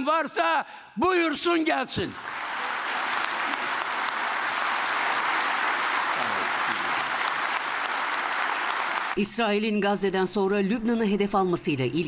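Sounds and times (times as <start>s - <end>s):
crowd applauding: 2.1s - 9.4s.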